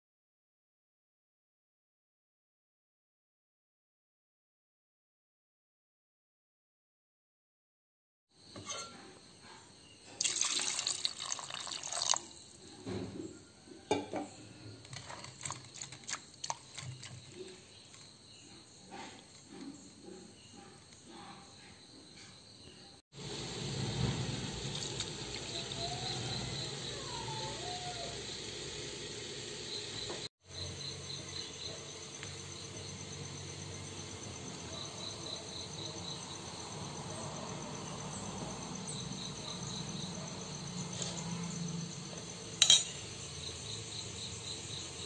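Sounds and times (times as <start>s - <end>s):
small clinks and drips: 10.1s - 12.6s, 14.9s - 18.1s
water splashing into a pot: 10.1s - 12.6s, 14.9s - 17.4s.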